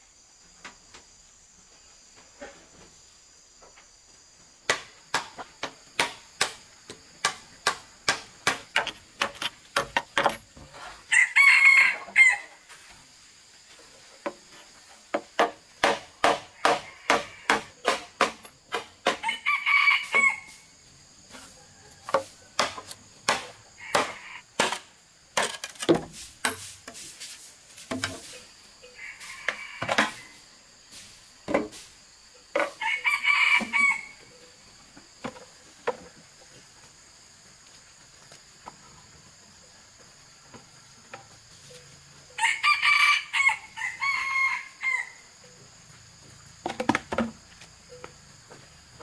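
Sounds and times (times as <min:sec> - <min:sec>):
machete chopping into ground: 0:07.2 - 0:10.0, 0:15.4 - 0:19.2, 0:22.1 - 0:26.8
rooster crowing: 0:11.1 - 0:12.6, 0:16.6 - 0:17.8, 0:19.2 - 0:20.7, 0:23.7 - 0:24.4, 0:28.8 - 0:30.4, 0:32.8 - 0:34.3, 0:42.4 - 0:45.5.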